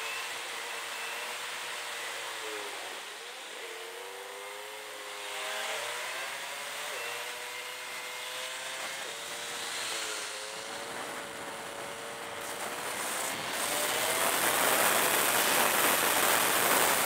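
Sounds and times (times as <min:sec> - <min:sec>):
motorcycle engine shifting gears: 0:03.1 - 0:17.0
wind hiss: 0:09.0 - 0:17.0.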